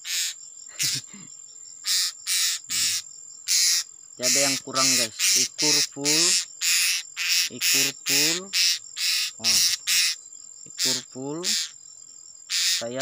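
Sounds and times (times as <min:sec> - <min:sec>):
cicadas calling in pulses: 0:00.0 - 0:13.0.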